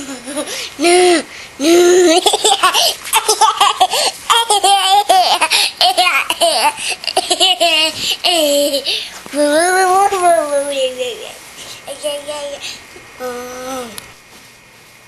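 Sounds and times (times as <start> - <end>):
toddler girl giggling: 2.0 - 8.9.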